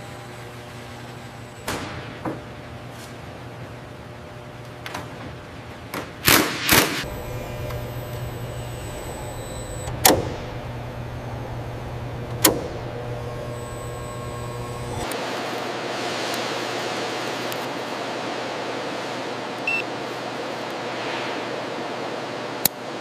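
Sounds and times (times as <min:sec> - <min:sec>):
electric machine hum with whine: 0:00.0 - 0:05.8, 0:07.0 - 0:23.0
power tool bursts: 0:06.7 - 0:15.2.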